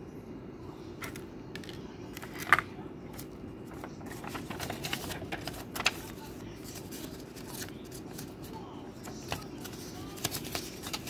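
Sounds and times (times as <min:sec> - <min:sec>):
low background hum: 0:00.0 - 0:11.0
paper leaflet rustling: 0:02.2 - 0:11.0.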